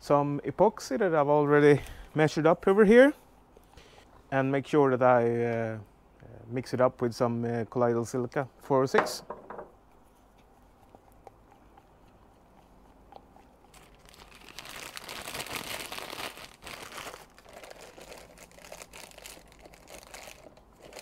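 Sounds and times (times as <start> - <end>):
plastic bag crinkling: 13.7 - 21.0.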